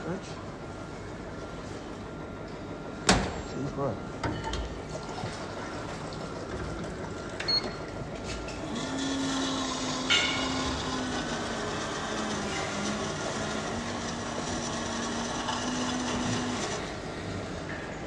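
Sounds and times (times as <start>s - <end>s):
pump humming: 4.8s - 18.0s.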